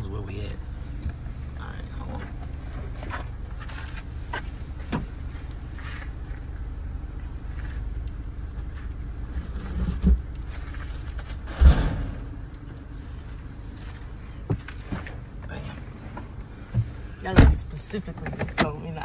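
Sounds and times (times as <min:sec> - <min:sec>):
car engine idling: 0:00.0 - 0:19.0
dull thump: 0:11.4 - 0:12.4
loud bang: 0:11.4 - 0:12.4.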